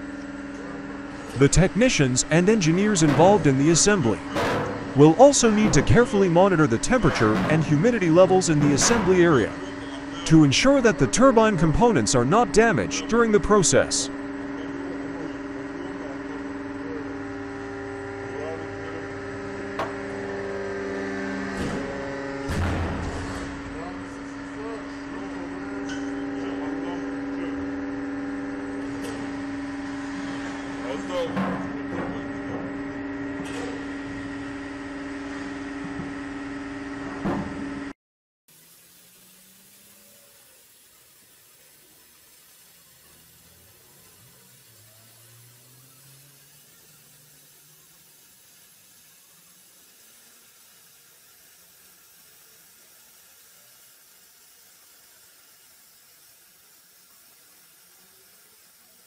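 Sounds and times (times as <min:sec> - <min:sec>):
machinery hum: 0:00.0 - 0:37.9
faint steady hiss: 0:38.5 - 0:48.1
faint hiss: 0:38.5 - 0:59.0.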